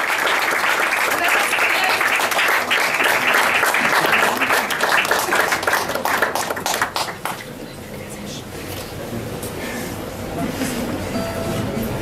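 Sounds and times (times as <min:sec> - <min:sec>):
small audience applauding: 0:00.0 - 0:07.6.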